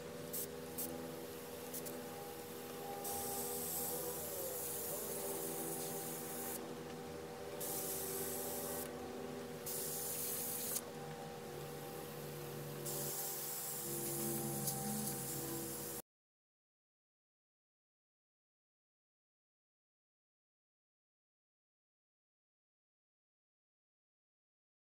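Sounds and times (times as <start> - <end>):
airbrush spraying hissing air: 0.3 - 2.0, 3.0 - 6.6, 7.6 - 8.9, 9.6 - 10.8, 11.8 - 16.0.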